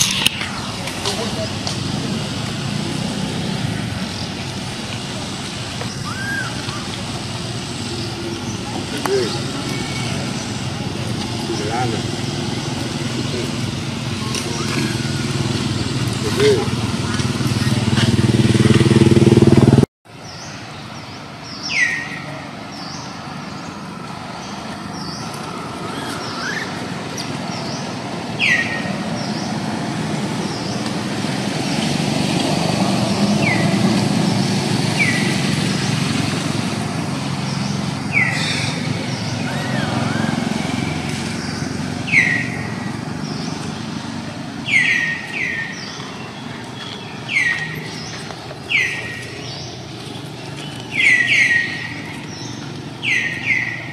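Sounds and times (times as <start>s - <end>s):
distant traffic rumble: 0.0s - 53.9s
bird chirping: 20.2s - 23.8s, 44.6s - 53.9s.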